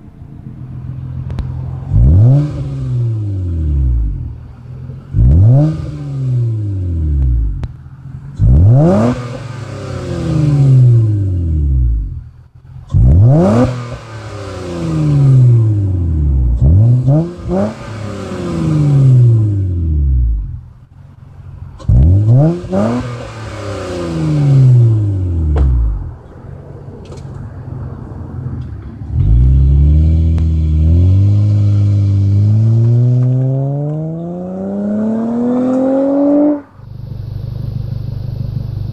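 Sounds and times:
car engine revving: 0.0s - 38.9s
car accelerating away: 0.8s - 7.6s, 8.3s - 12.1s, 12.9s - 20.6s, 21.8s - 26.8s, 29.0s - 36.8s.

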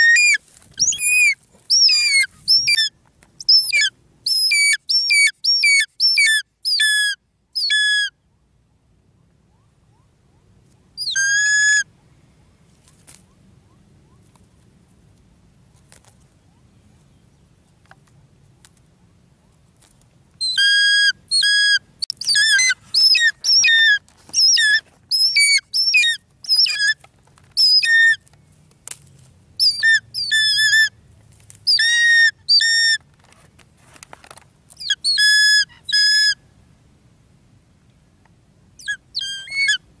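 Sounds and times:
hawk-eagle shrill whistled calls: 0.0s - 8.1s, 11.0s - 11.9s, 20.4s - 27.0s, 27.6s - 28.2s, 29.6s - 30.9s, 31.7s - 33.0s, 34.8s - 36.4s, 38.8s - 39.8s.

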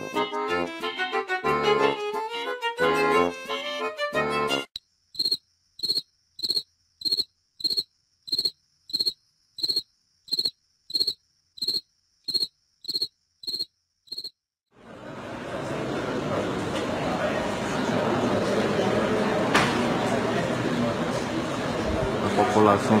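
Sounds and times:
accordion music: 0.0s - 4.8s
cricket chirping: 4.8s - 14.4s.

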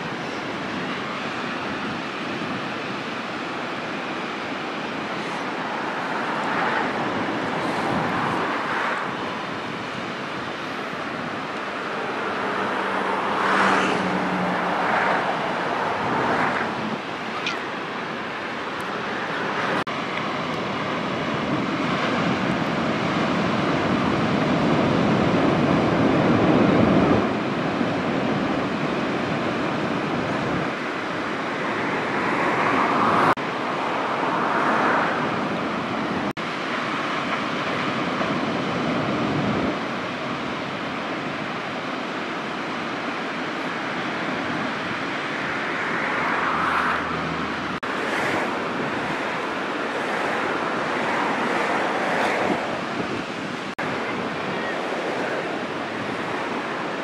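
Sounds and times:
ocean surf washing ashore: 0.0s - 57.0s.

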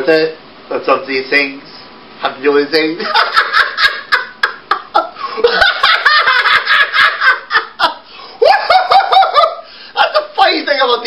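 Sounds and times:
man laughing loudly: 3.0s - 10.2s.

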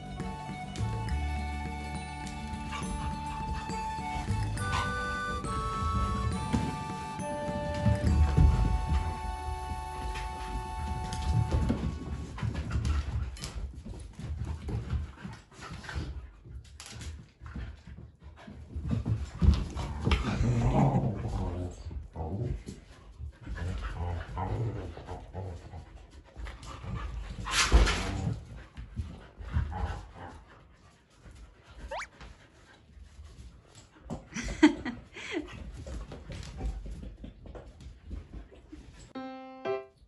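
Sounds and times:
dogs scuffling: 0.0s - 34.9s, 35.6s - 39.1s
dogs growling and yipping: 19.8s - 22.5s, 23.6s - 25.8s.

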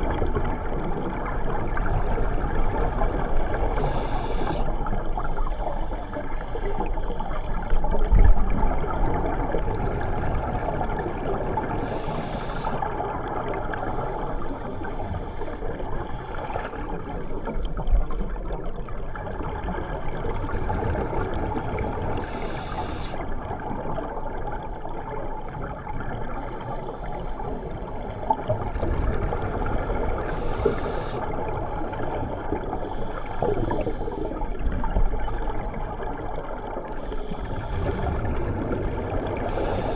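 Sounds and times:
muffled underwater rushing: 0.0s - 39.9s
regulator bubbles hissing: 0.0s - 39.9s.

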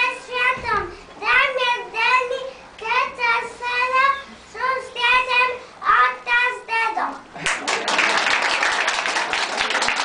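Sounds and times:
applause: 7.4s - 10.0s.

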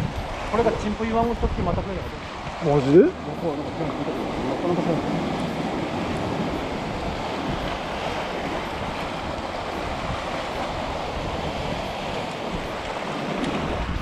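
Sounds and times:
surf washing through rocks: 0.0s - 14.0s.

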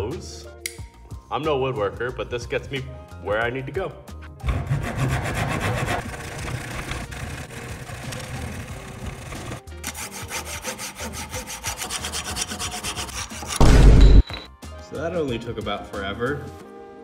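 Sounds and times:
hand saw cutting wood: 4.4s - 13.6s.

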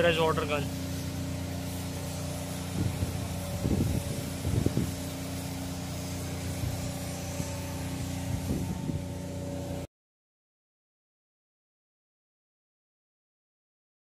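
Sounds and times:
pressure washer machine droning: 0.0s - 9.9s.

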